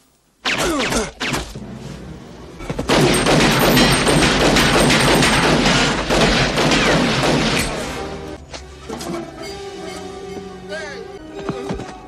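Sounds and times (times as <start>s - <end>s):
rapid automatic gunfire: 2.9s - 7.9s
bullets striking sheet metal: 2.9s - 8.0s.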